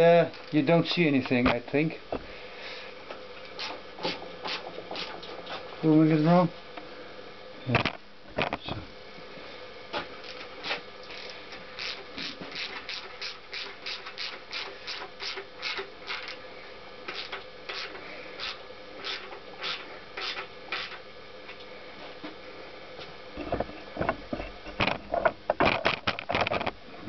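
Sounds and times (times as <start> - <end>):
hand ratchet clicking: 11.1 - 16.4.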